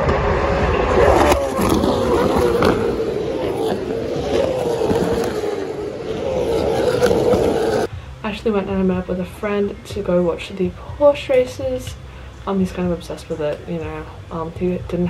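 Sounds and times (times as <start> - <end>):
racing cars passing at high revs: 0.0 - 7.9.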